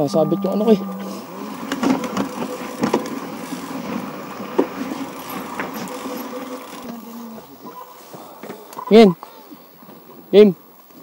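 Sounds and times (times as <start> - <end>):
small engine idling: 0.0 - 7.7.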